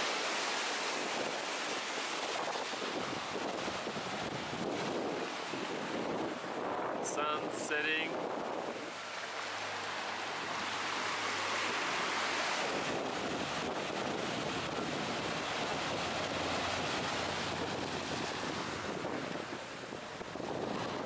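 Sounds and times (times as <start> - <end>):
ocean surf breaking over rock: 0.0 - 21.0.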